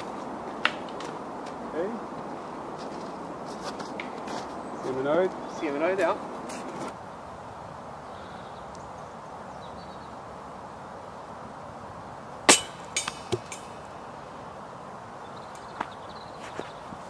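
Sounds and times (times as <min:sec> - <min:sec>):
disc knocking onto snow: 0:12.5 - 0:13.7.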